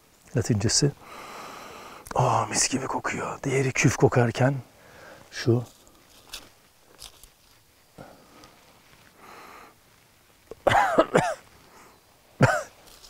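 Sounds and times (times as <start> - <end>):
faint breath: 1.0 - 2.1, 4.7 - 6.2, 8.0 - 9.8
man coughing or clearing throat: 10.5 - 11.4, 12.4 - 12.8.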